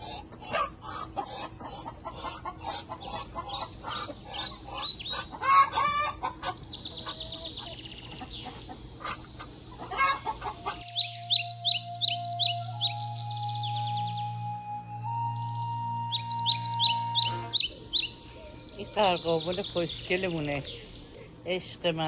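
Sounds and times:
chickens clucking and cackling: 0.0s - 21.6s
birds chirping: 0.0s - 22.0s
music: 10.6s - 19.6s.

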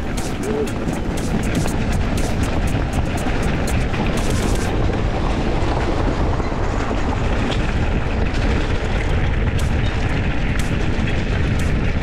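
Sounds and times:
deep rumble: 0.0s - 12.0s
wind buffeting microphone: 0.0s - 12.0s
sharp clicks: 9.5s - 12.0s.

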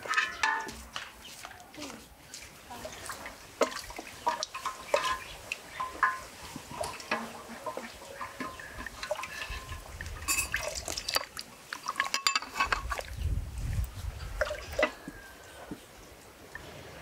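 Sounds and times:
ladle clinking against pot: 0.0s - 0.9s, 3.6s - 13.0s
broth splashing and dripping: 2.2s - 17.0s.

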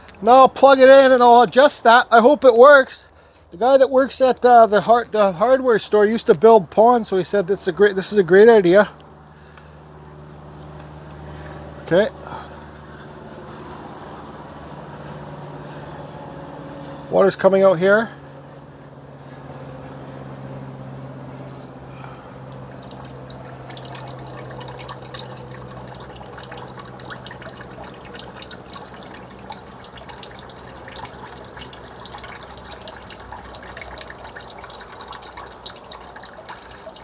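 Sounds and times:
low steady hum: 0.0s - 37.0s
water trickling and dripping: 22.0s - 37.0s.

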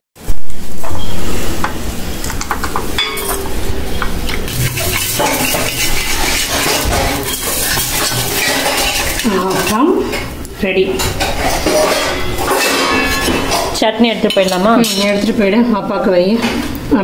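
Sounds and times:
metal ladle scraping pans: 1.0s - 10.4s, 11.0s - 15.6s
spatula scraping pan: 3.0s - 10.4s, 11.0s - 15.6s.

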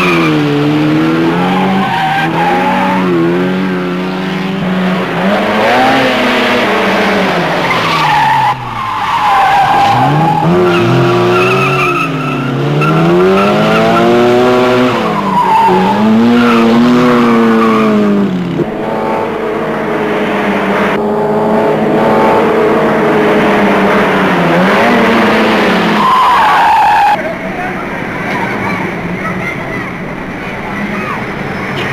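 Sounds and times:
car engines revving: 0.0s - 31.9s
tyres squealing: 1.2s - 3.4s, 7.6s - 18.1s, 24.6s - 27.3s.

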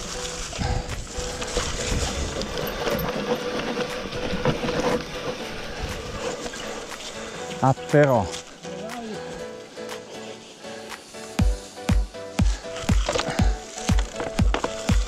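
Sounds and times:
bike knocking and clicking: 0.0s - 7.2s, 11.0s - 15.0s
bike tyres on rough trail: 0.0s - 15.0s.

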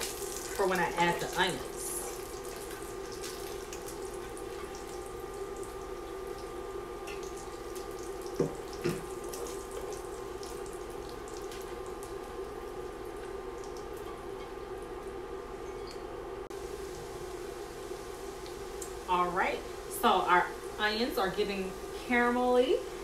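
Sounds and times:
fat sizzling and crackling: 0.0s - 15.2s.

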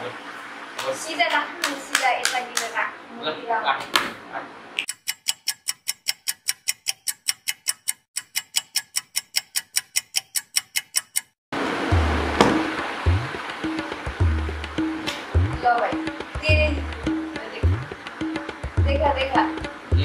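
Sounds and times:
clock ticking: 4.8s - 11.4s
music with deep bass beat: 11.9s - 20.0s.

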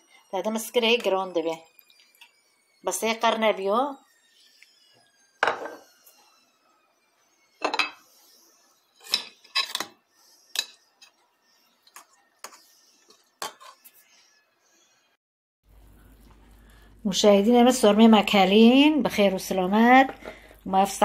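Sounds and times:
spoon and plate clinking on pot: 5.4s - 5.9s, 7.6s - 8.1s, 9.0s - 11.1s, 13.4s - 13.8s.

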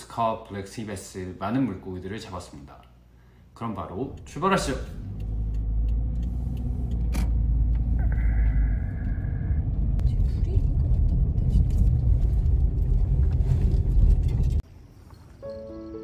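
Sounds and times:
car engine and tyres rumbling: 4.0s - 14.6s.

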